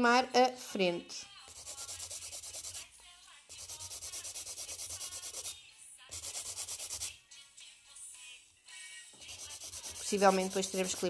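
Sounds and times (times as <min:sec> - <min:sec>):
nail file rasping: 0:01.5 - 0:02.9, 0:03.5 - 0:07.2, 0:09.2 - 0:11.0.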